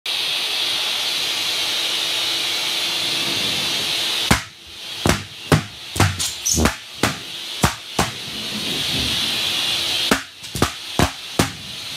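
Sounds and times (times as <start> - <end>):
shop vac sucking air: 0.1 - 11.9
balloons popping: 5.1 - 8.1, 10.1 - 11.6.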